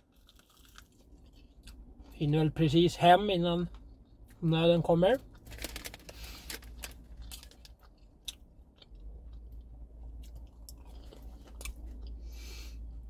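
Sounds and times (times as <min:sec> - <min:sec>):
person chewing crunchy food: 0:00.0 - 0:02.2, 0:05.2 - 0:13.0.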